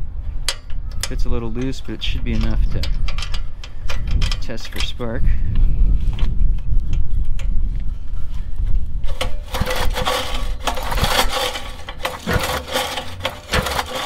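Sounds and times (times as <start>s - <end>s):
recoil starter cranking engine: 9.1s - 14.0s.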